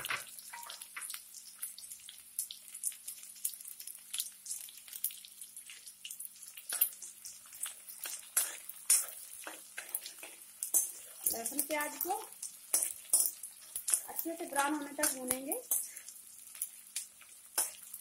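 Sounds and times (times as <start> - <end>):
onions sizzling in hot oil: 0.0 - 18.0
spoon scraping a pan: 6.6 - 18.0.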